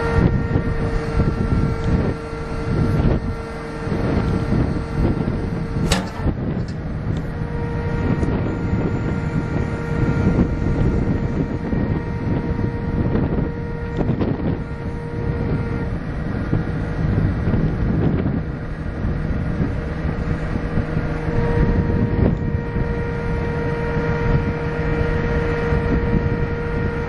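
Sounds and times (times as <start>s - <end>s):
diesel engine rumbling: 0.0s - 27.0s
engine whine: 0.0s - 27.0s
sharp click: 5.8s - 6.8s.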